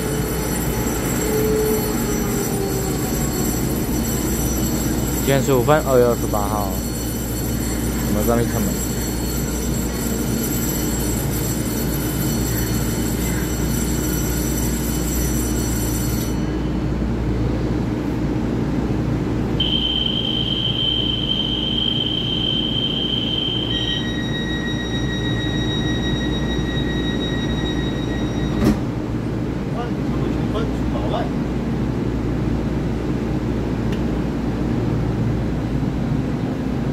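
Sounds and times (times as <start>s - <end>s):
steady high-pitched tone: 0.0s - 16.7s, 19.6s - 28.8s
high whine: 0.0s - 17.0s, 19.5s - 29.8s
train equipment humming: 0.0s - 36.9s.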